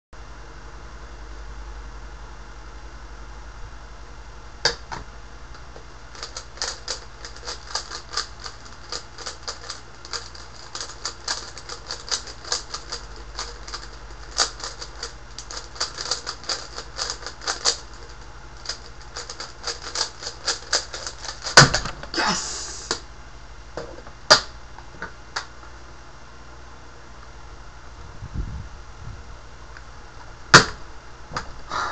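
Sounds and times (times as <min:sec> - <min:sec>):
puzzle cube clicking: 0:06.2 - 0:21.6.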